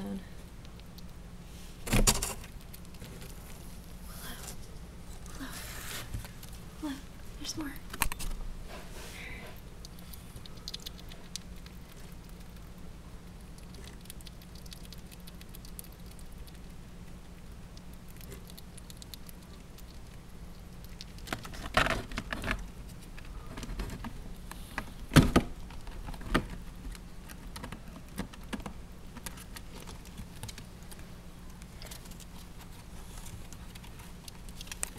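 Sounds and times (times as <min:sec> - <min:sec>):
rat chewing clicks: 0:00.4 - 0:01.2, 0:02.1 - 0:03.4, 0:09.6 - 0:34.9.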